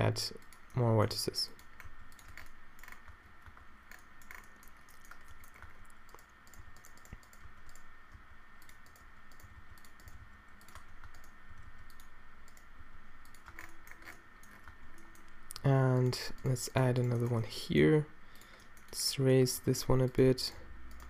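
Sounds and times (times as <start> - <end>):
faint high hum: 0.0 - 21.0
computer keyboard clicks: 1.6 - 7.9, 8.6 - 16.1.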